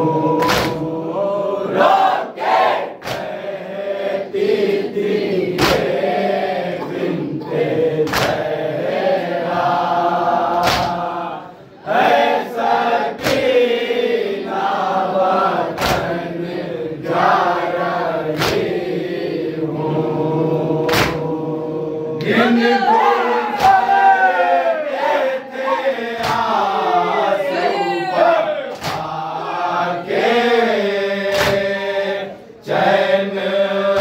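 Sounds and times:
men chanting together: 0.0s - 34.0s
chest-beating slaps: 0.4s - 0.9s, 3.0s - 3.4s, 5.5s - 6.0s, 8.0s - 8.5s, 10.5s - 11.2s, 13.2s - 13.6s, 15.8s - 16.2s, 18.3s - 18.8s, 20.8s - 21.3s, 23.5s - 23.9s, 26.1s - 26.7s, 28.7s - 29.2s, 31.2s - 31.8s.

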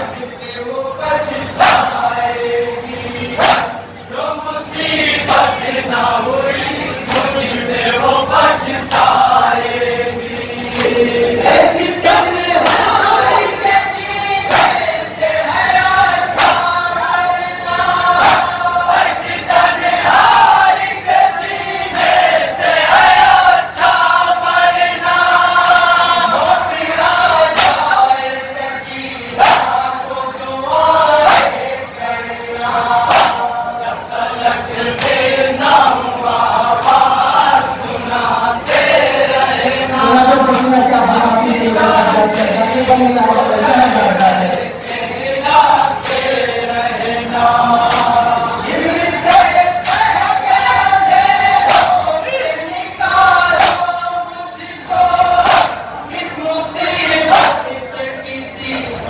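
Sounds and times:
men chanting a lament: 0.0s - 59.0s.

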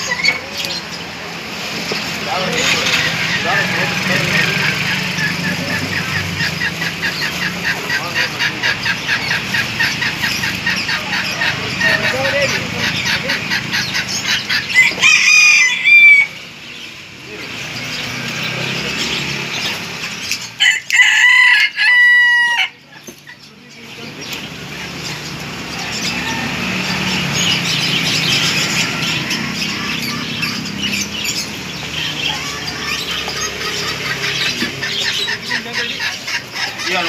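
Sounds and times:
busy background noise: 0.0s - 37.0s
rooster crowing: 14.7s - 16.4s, 20.6s - 22.8s, 25.8s - 27.2s.

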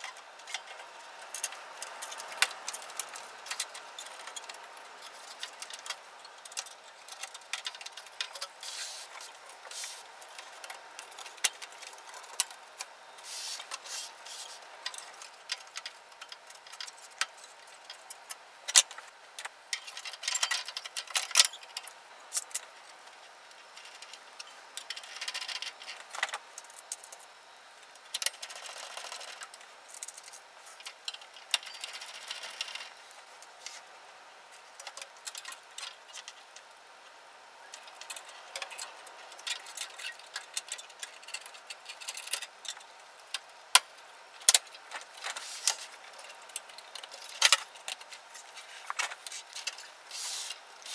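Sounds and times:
rustling and scraping: 0.0s - 18.1s, 31.8s - 33.9s, 44.8s - 50.9s.

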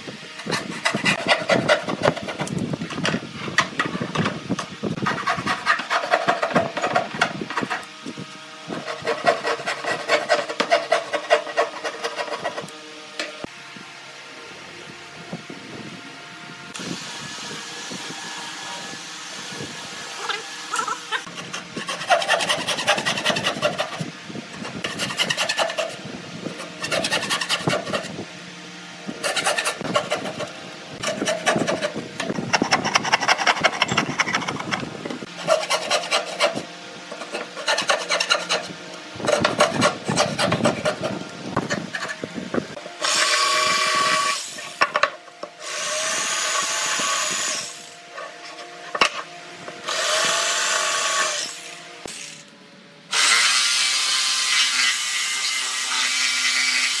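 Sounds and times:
hand saw cutting wood: 0.3s - 8.0s, 8.6s - 13.5s, 18.3s - 28.2s, 29.1s - 45.0s, 53.1s - 57.0s
electric jigsaw cutting: 8.7s - 13.4s, 16.8s - 28.2s, 29.2s - 42.2s, 42.9s - 44.9s, 45.6s - 48.1s, 49.8s - 52.4s, 53.1s - 57.0s.

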